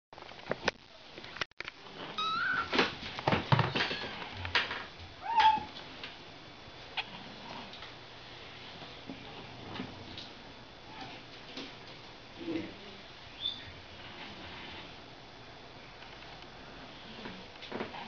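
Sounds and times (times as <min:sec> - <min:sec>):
kittens mewing: 0:02.2 - 0:02.9, 0:05.2 - 0:05.8.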